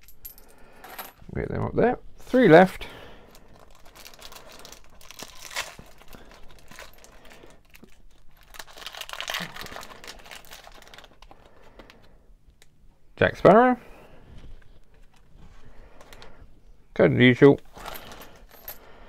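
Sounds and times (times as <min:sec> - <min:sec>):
foil wrapper crinkling and tearing: 0:03.5 - 0:11.9.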